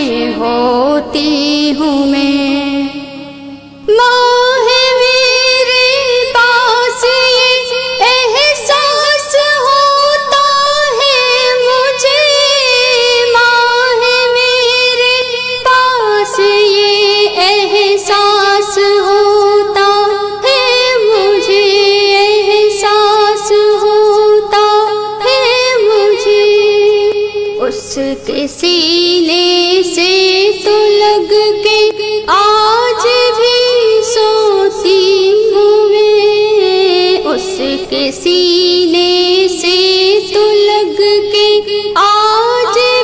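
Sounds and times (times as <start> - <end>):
woman singing wordless melody: 0.0 - 43.0.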